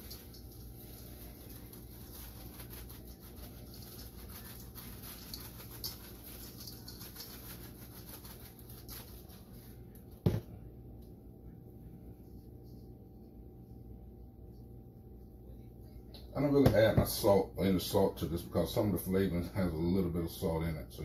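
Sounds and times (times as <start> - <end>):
seasoning shaken from shaker: 0.0 - 9.8.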